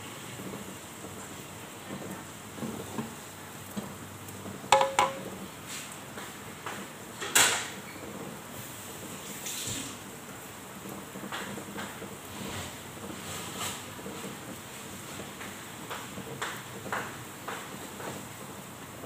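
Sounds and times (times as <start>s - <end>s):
frying hiss: 0.0s - 19.0s
dull knock: 4.7s - 5.2s
metal clinks on pan: 4.7s - 5.4s.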